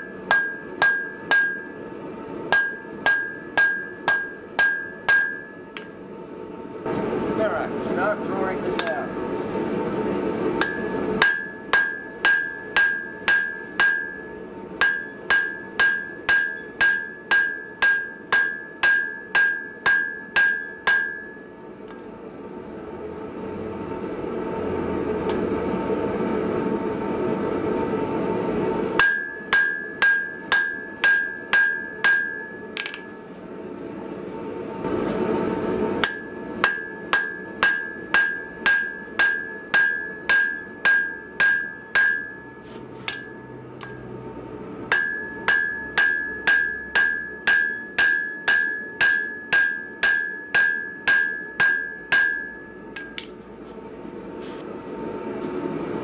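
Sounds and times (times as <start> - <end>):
anvil ringing: 0.0 - 1.8, 2.5 - 5.9, 10.6 - 21.5, 29.0 - 33.2, 36.0 - 44.1, 44.9 - 53.4
hammer blows on hot steel: 10.6 - 21.5, 36.0 - 44.1, 44.9 - 53.4.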